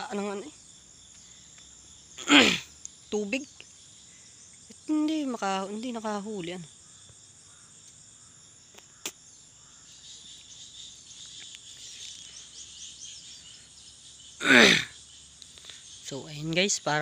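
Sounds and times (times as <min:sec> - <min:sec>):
crickets and insects chirping: 0:00.0 - 0:17.0
person vocal sound: 0:02.2 - 0:02.7, 0:14.4 - 0:14.9.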